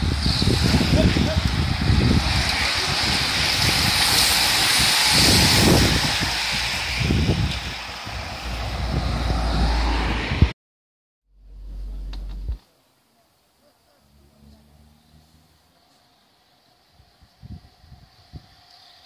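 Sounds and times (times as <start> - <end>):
bicycle tyres and drivetrains whirring: 0.0 - 10.5, 13.9 - 19.0
low buffeting rumble: 11.4 - 12.6.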